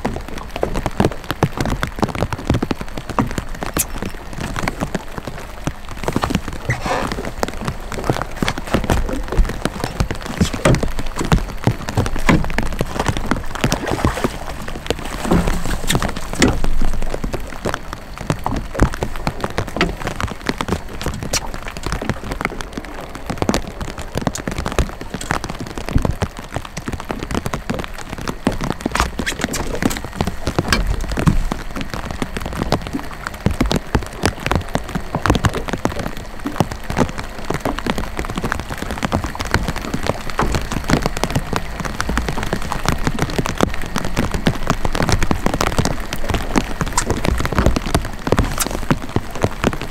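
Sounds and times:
light rain on boat and water: 0.0s - 49.9s.

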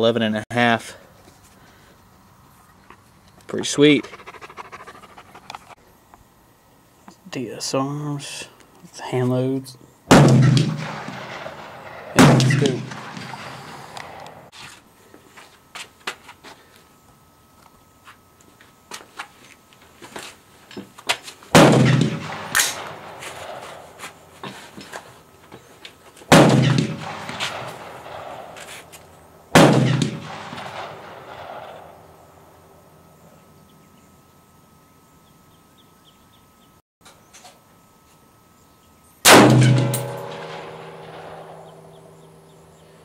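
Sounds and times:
rifle gunshots with echo: 10.1s - 14.5s, 21.6s - 24.0s, 26.3s - 28.8s, 29.5s - 32.3s, 39.3s - 42.3s.

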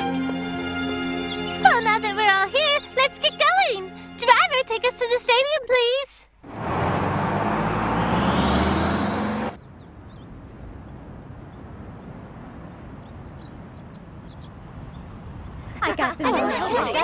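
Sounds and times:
minibus engine revving: 6.4s - 12.3s.

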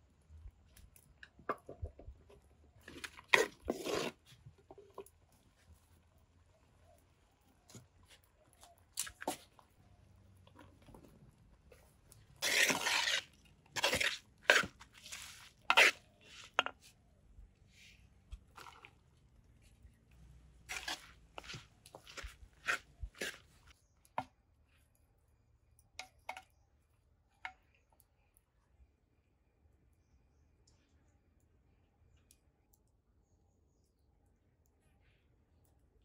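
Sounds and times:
spoon scraping in clay pot: 2.8s - 5.1s, 10.6s - 17.0s, 20.7s - 23.7s.

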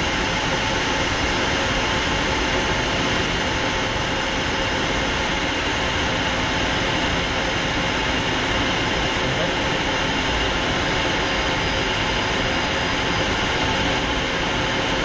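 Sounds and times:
jet engine and airflow rush: 0.0s - 15.0s.

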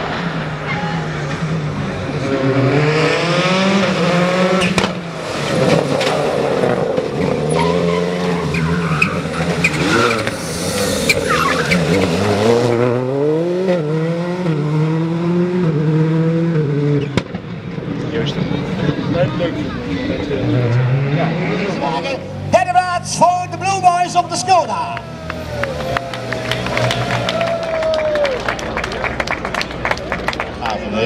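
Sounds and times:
rally car engine at full throttle: 0.0s - 28.4s
tyre squeals: 7.3s - 12.3s.

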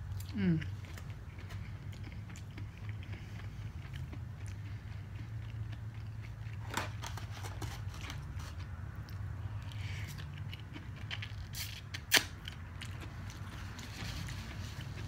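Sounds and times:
steady low hum: 0.0s - 11.5s
chewing food: 0.0s - 15.0s.

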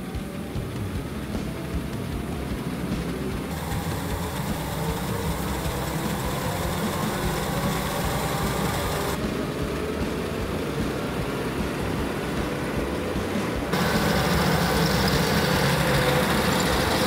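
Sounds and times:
treadmill motor humming: 0.1s - 9.2s, 9.8s - 17.0s
toy wheels rolling on belt: 3.4s - 9.2s, 13.7s - 17.0s.

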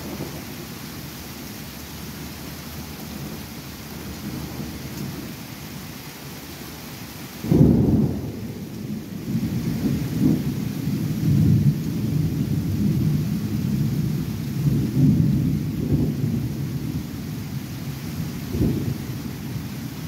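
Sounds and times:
thunder clap and rumble: 0.0s - 0.6s, 7.4s - 19.7s
rain hissing: 0.0s - 20.0s.

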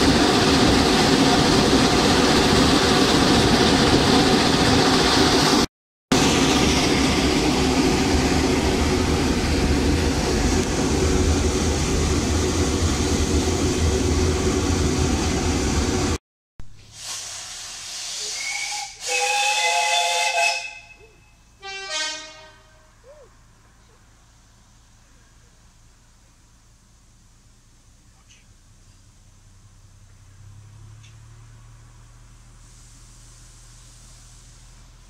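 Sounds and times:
loud rushing rumble: 0.0s - 16.2s
steam hiss: 16.8s - 20.8s, 32.4s - 35.0s
steam locomotive whistle: 17.0s - 23.0s.

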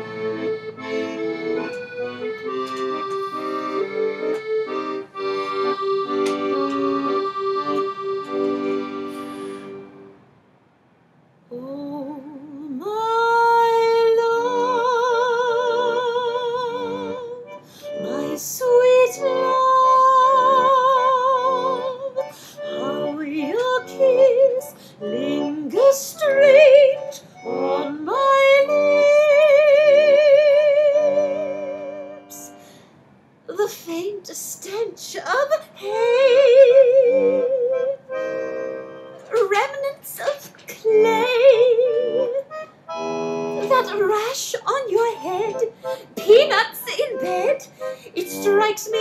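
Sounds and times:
chordal accompaniment: 0.0s - 10.2s.

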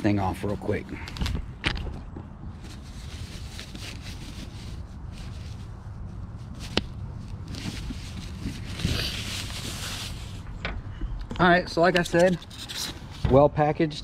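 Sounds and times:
cloth bag rustling: 2.6s - 10.4s.

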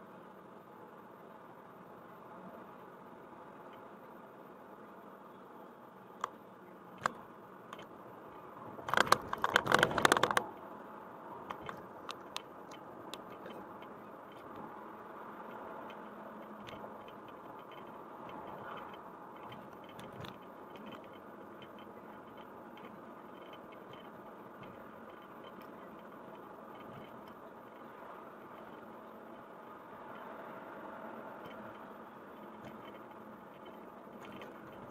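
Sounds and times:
car cabin hum: 5.6s - 30.2s
scattered ticks: 8.8s - 10.7s, 11.4s - 34.9s.

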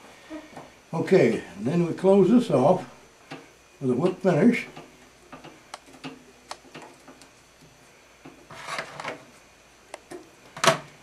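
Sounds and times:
small clicks and taps of tools: 3.3s - 3.5s.

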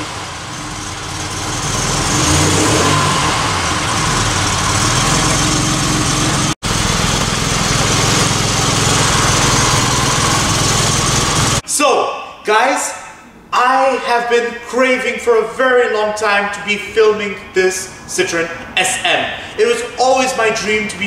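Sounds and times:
car engine idling: 0.0s - 11.6s
hydraulic suspension raising car: 0.0s - 11.6s.

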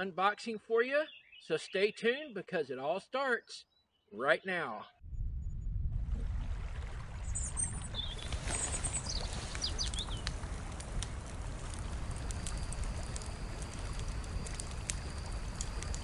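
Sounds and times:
birds chirping: 1.0s - 5.0s, 7.3s - 10.4s
steady low rumble: 5.0s - 9.0s, 9.9s - 16.0s
faint ticks: 9.0s - 16.0s.

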